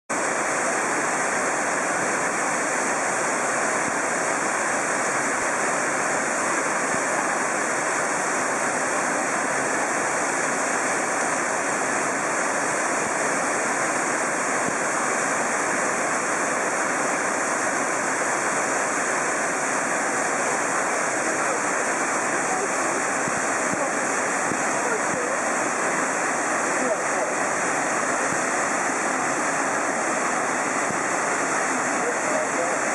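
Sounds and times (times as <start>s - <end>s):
waterfall rushing: 0.1s - 32.9s.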